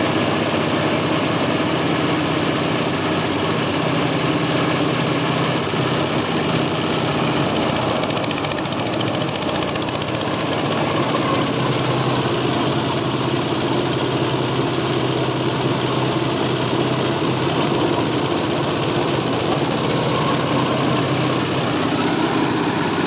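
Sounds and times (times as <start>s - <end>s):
stationary engine running: 0.0s - 23.0s
shredder rotor whirring and rattling: 5.5s - 23.0s.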